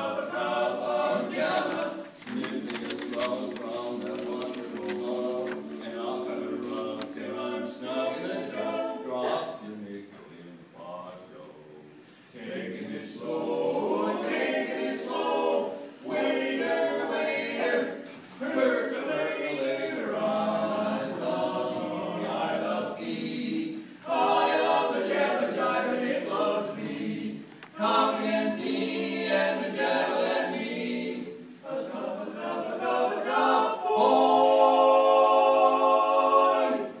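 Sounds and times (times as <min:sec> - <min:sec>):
men singing a cappella harmony: 0:00.0 - 0:02.7, 0:12.3 - 0:37.0.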